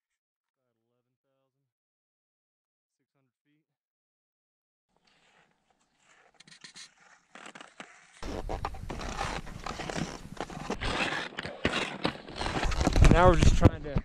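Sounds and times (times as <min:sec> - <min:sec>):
skis scraping and crunching snow: 0:04.9 - 0:14.0.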